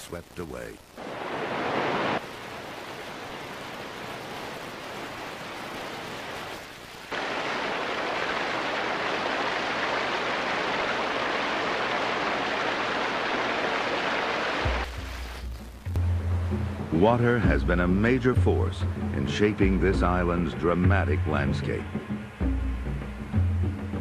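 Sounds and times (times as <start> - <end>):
river water rushing: 1.0 - 14.9.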